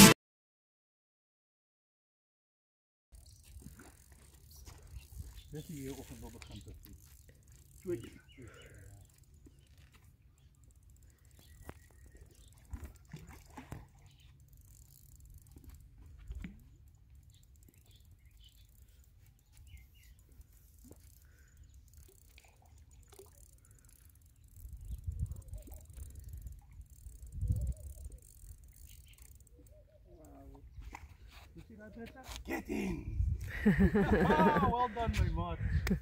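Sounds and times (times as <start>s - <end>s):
faint bird chirps: 4.5s - 6.8s, 7.8s - 13.1s, 17.2s - 22.2s, 27.3s - 30.4s.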